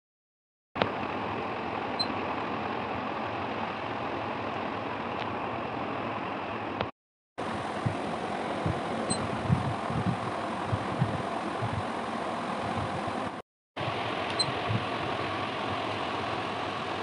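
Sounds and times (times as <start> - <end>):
background hum and hiss: 0.8 - 17.0
soft low thuds: 8.6 - 11.9.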